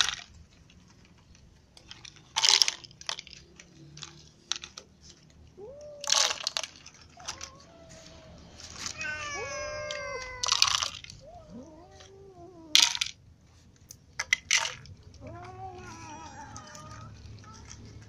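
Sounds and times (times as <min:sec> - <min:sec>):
kibble rattling into plastic cups: 0:00.0 - 0:12.1, 0:12.8 - 0:13.2, 0:13.9 - 0:18.0
cats meowing: 0:05.4 - 0:13.0, 0:15.0 - 0:18.0.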